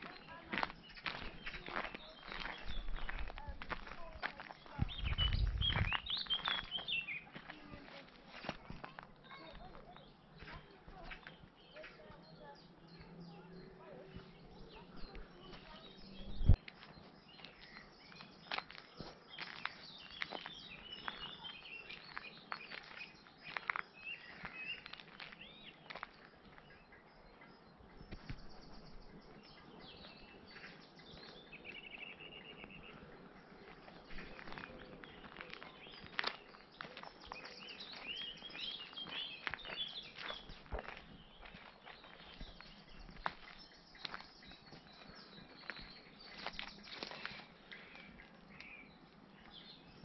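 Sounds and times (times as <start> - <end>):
footsteps crunching on dry path: 0.0 - 27.4, 28.0 - 50.0
songbirds chirping: 0.0 - 50.0.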